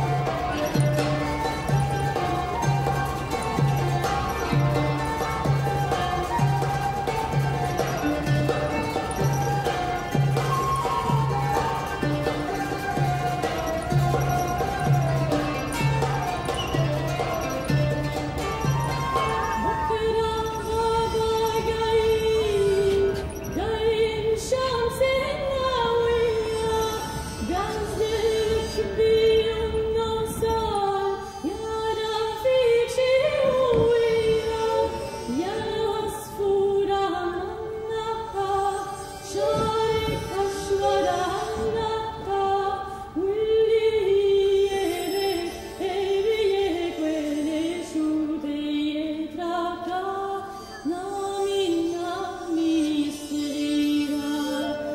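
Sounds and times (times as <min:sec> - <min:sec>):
musical accompaniment: 0:00.0 - 0:24.3
person singing long wavering notes: 0:00.0 - 0:54.9.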